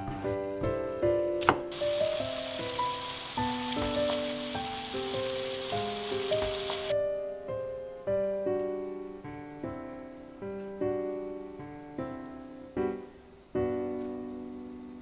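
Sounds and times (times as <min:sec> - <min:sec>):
gentle background music: 0:00.0 - 0:15.0
tofu sizzling in a pan: 0:01.7 - 0:06.9.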